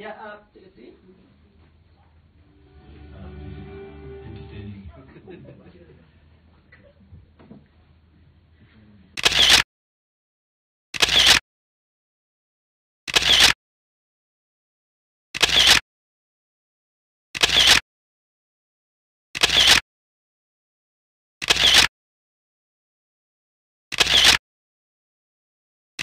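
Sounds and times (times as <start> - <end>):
camera shutter click: 9.2 - 9.6, 11.0 - 11.4, 13.1 - 13.6, 15.4 - 15.8, 17.4 - 17.8, 19.4 - 19.8, 21.4 - 21.9, 23.9 - 24.4.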